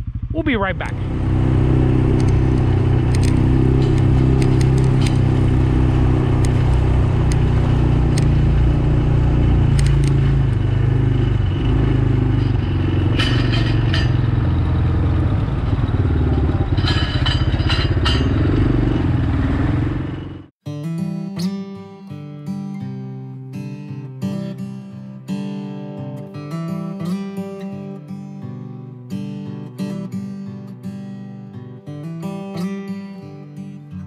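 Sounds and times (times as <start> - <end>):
atv engine running: 0.0 - 20.5
clattering: 12.3 - 14.8, 16.3 - 18.7.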